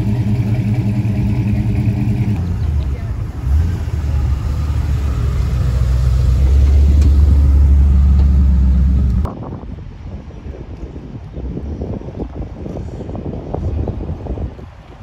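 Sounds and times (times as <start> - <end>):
car engine exhaust note: 0.0 - 9.3
car passing: 0.0 - 9.3.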